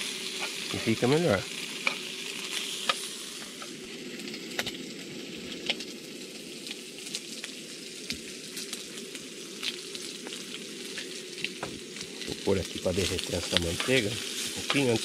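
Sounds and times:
bacon sizzling in a frying pan: 0.0 - 15.0.

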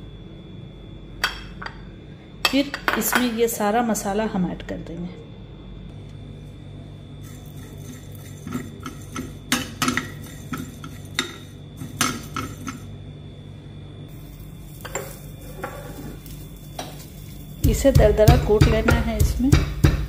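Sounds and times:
steady low hum: 0.0 - 20.0
spoon scraping a frying pan: 7.2 - 12.9, 14.1 - 17.7.

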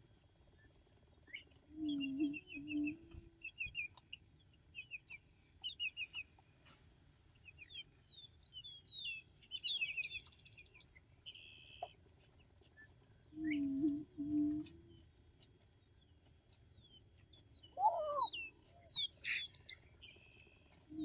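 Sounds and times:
small birds chirping: 0.0 - 21.0
bird song with buzzy trill: 8.3 - 12.0, 16.9 - 20.5.

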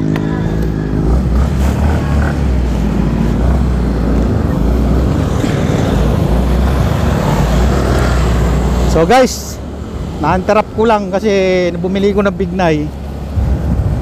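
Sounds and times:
motorcycle engine running: 0.0 - 9.1
wind rumble on microphone: 13.0 - 14.0.

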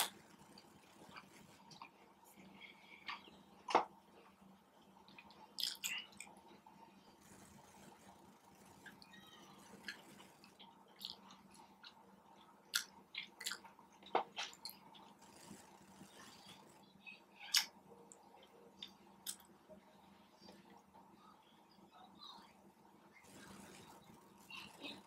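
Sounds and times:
person chewing food: 5.1 - 6.3, 9.8 - 13.7.

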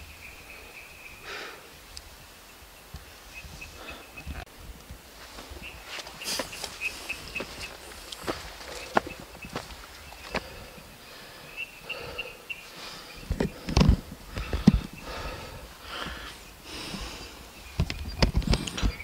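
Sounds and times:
footsteps on grassy trail: 4.8 - 11.4.

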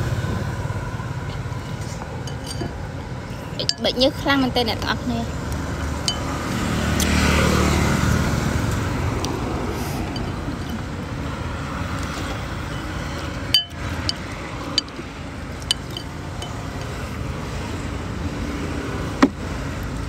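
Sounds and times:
road traffic rumble: 0.0 - 20.0
spoon clinking on ceramic bowl: 2.3 - 2.8, 3.6 - 4.0, 6.1 - 6.3, 13.5 - 14.2, 15.6 - 16.6.

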